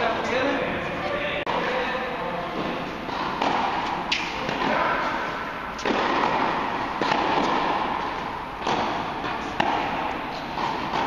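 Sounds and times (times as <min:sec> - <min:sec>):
tennis ball hits echoing: 0:02.6 - 0:11.0.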